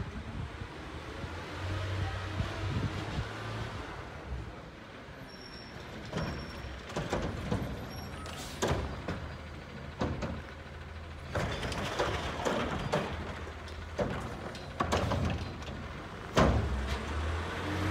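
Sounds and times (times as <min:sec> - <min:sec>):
distant garbage truck engine rumble: 0:00.0 - 0:17.9
garbage truck knocks and bangs: 0:05.8 - 0:17.4.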